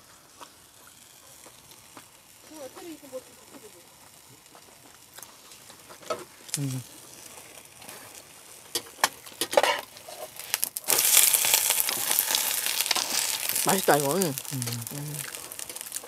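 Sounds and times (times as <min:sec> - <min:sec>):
pancake sizzling in oil: 0:00.0 - 0:16.0
metal turner scraping a pan: 0:07.9 - 0:13.6.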